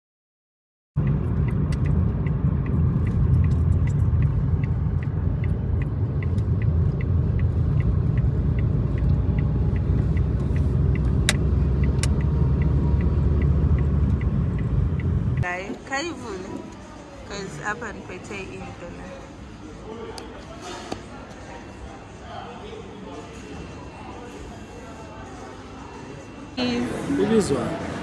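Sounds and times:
turn signal ticking: 0:01.0 - 0:15.5
car road noise rumble: 0:01.0 - 0:15.6.

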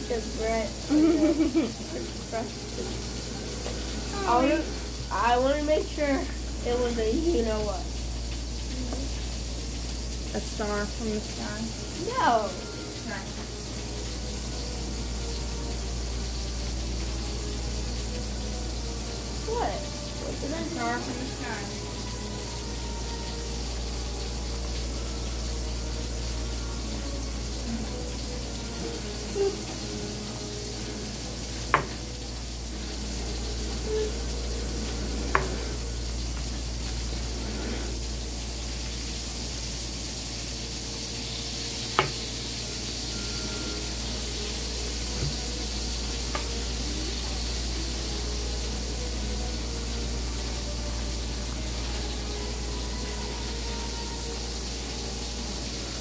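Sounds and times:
steady hiss with low hum: 0:00.0 - 0:56.0
plastic knife tapping cutting mat: 0:42.0 - 0:42.2.

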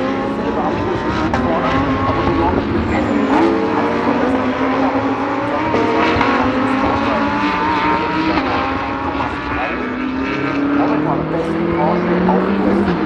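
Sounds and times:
race car engines accelerating: 0:00.0 - 0:13.0.

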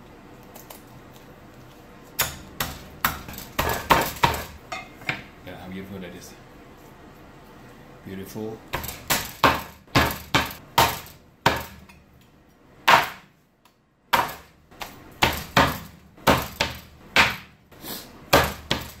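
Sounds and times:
cleaver chopping on plastic board: 0:08.8 - 0:11.8, 0:14.2 - 0:17.5, 0:18.3 - 0:19.0.

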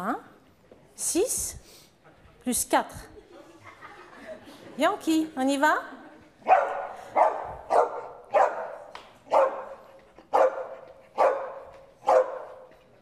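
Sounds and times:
dog barking: 0:06.4 - 0:12.7.

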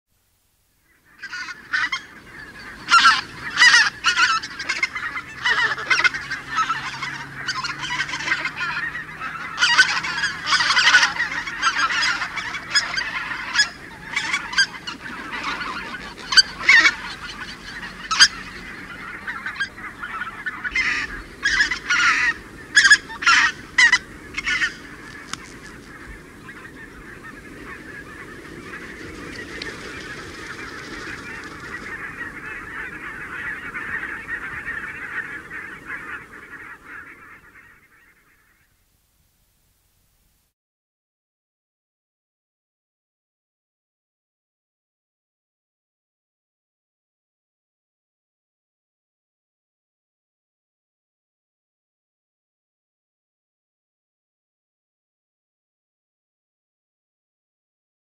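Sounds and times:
geese honking: 0:00.9 - 0:38.8.

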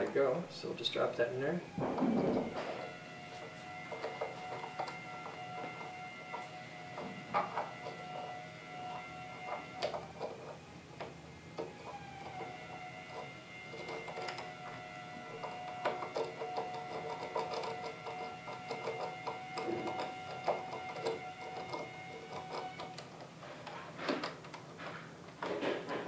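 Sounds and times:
steady high whine: 0:00.0 - 0:17.1
lock pick clicking and scraping: 0:03.4 - 0:08.0, 0:09.4 - 0:26.0.

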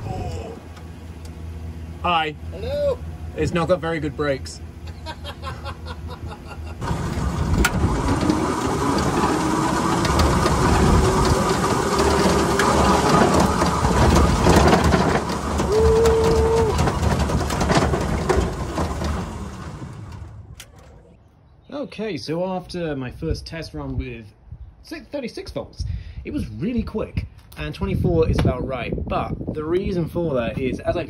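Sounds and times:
car body rattling: 0:04.9 - 0:21.1
tyre and wind noise: 0:06.8 - 0:21.1, 0:25.7 - 0:31.0.

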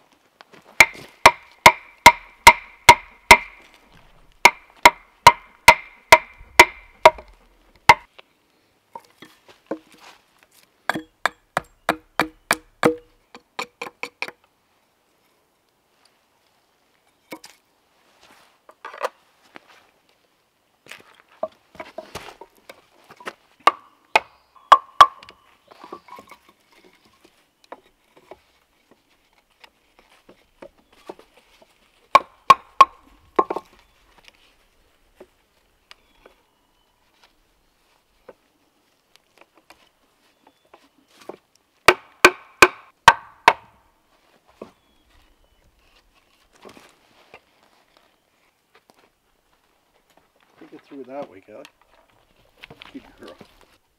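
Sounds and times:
mallet striking wood: 0:00.8 - 0:03.6, 0:04.4 - 0:07.3, 0:07.9 - 0:08.1, 0:10.9 - 0:14.4, 0:23.6 - 0:25.4, 0:32.1 - 0:33.7, 0:41.9 - 0:43.7.

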